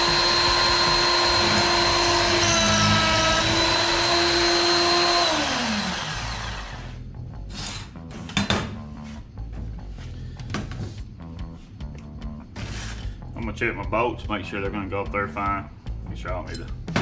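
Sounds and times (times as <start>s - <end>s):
drill press motor whining: 0.0s - 7.9s.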